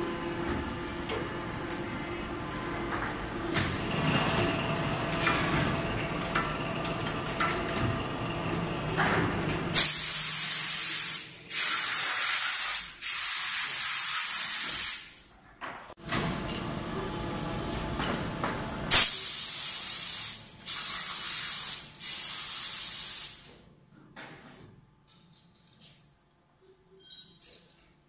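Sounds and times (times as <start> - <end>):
loud air hiss: 9.8 - 15.2, 18.9 - 23.5.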